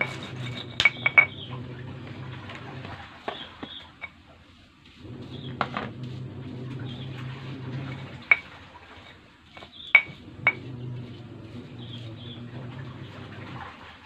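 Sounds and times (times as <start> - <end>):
stone pestle grinding in mortar: 0.0 - 13.2.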